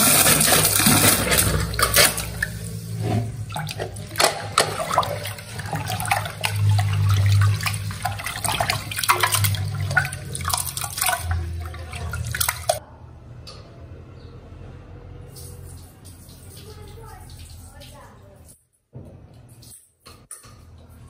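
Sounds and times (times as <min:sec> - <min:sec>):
clatter in sink: 0:00.0 - 0:12.8
water running from a tap: 0:00.0 - 0:12.8, 0:15.3 - 0:18.5.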